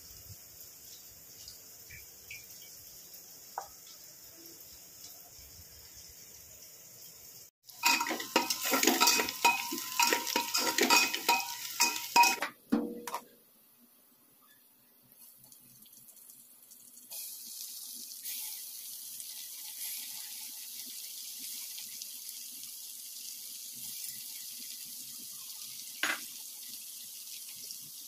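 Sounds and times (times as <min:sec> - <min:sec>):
onions sizzling: 0:00.0 - 0:12.6, 0:15.2 - 0:28.0
spatula clanking against pot: 0:07.8 - 0:13.2.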